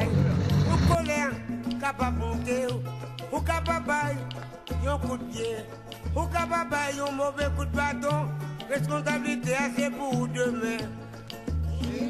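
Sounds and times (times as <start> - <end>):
repeating bass line: 0.0 - 1.2
person singing: 0.0 - 12.0.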